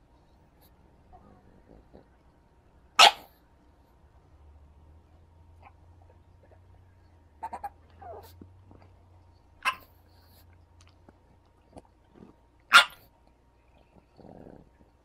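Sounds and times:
small dog noises: 0:00.5 - 0:03.5, 0:05.5 - 0:15.0
dog barking: 0:03.0 - 0:03.4, 0:09.6 - 0:09.9, 0:12.7 - 0:13.1.

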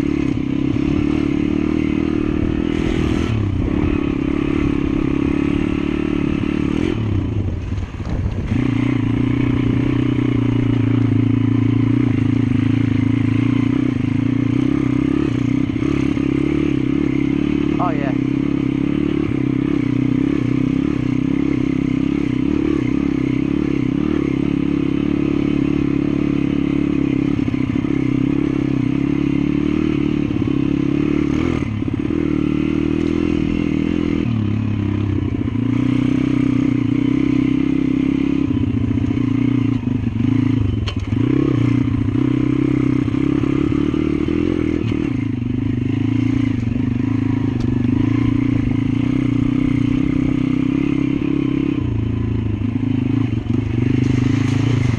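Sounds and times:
motorbike engine running: 0:00.0 - 0:54.9
bike rattling: 0:52.6 - 0:54.9.

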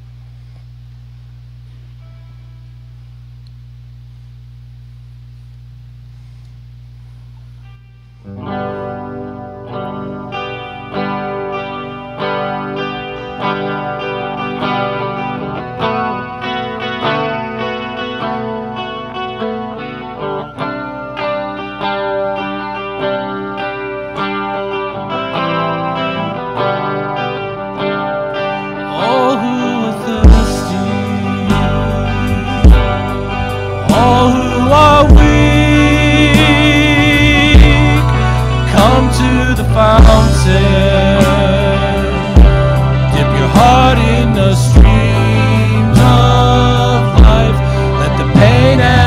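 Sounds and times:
low steady hum: 0:00.0 - 0:14.3, 0:29.0 - 0:49.0
electric guitars playing: 0:01.6 - 0:03.5, 0:06.2 - 0:49.0.

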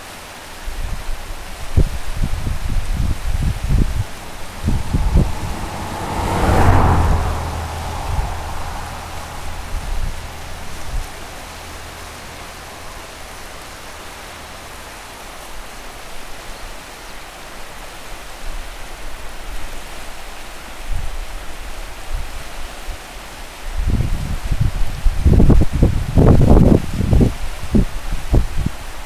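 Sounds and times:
river rushing over stones: 0:00.0 - 0:25.4
wind buffeting microphone: 0:00.7 - 0:14.1, 0:23.7 - 0:29.0.

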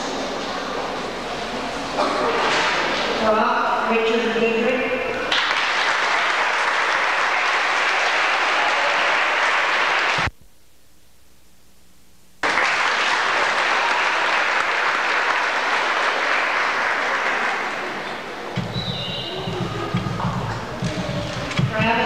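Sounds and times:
audience applauding: 0:05.3 - 0:10.3, 0:12.4 - 0:21.6.

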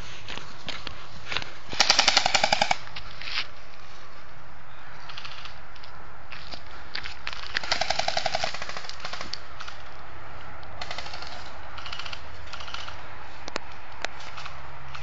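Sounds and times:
airsoft guns firing: 0:01.8 - 0:02.8, 0:07.5 - 0:09.4, 0:10.8 - 0:13.0.

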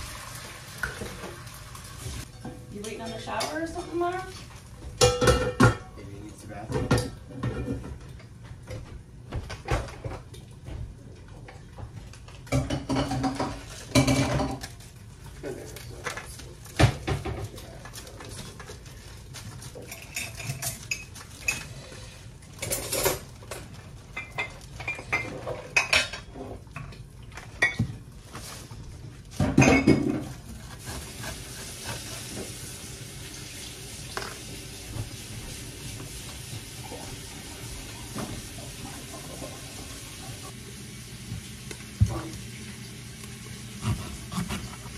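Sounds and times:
dishes and cutlery clattering: 0:02.2 - 0:08.9, 0:12.4 - 0:14.8, 0:19.6 - 0:22.0, 0:22.6 - 0:28.0, 0:29.4 - 0:30.4.

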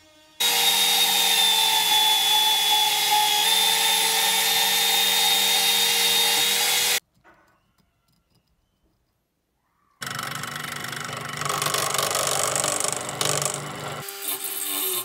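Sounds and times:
band saw cutting steel: 0:00.0 - 0:07.0.

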